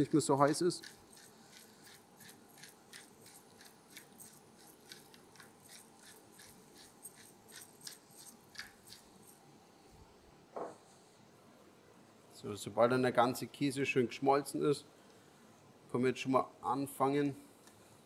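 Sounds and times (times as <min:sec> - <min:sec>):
pepper mill grinding: 0:00.0 - 0:09.4.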